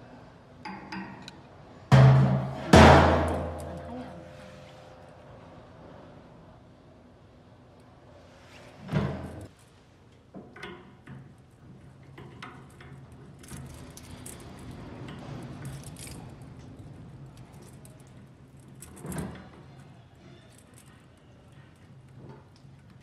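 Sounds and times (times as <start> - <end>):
metal clank: 1.9 - 4.4
metal hose clinking and rattling: 10.5 - 23.0.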